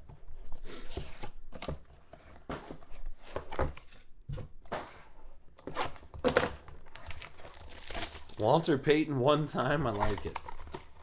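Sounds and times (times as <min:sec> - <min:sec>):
cardboard boxes knocking and rustling: 0:00.1 - 0:05.1.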